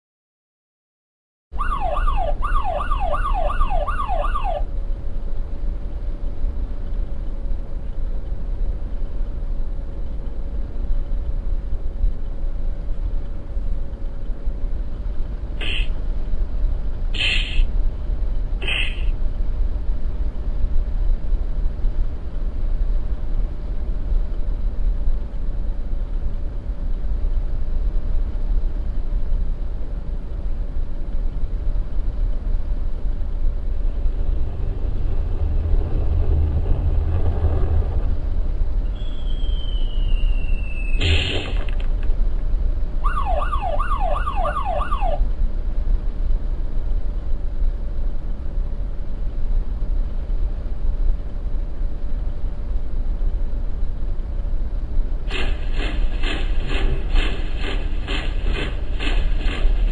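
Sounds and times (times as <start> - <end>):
low rumble with hum: 1.5 - 59.9
police siren yelping: 1.6 - 4.7, 43.0 - 45.2
short bright blips: 17.2 - 17.7.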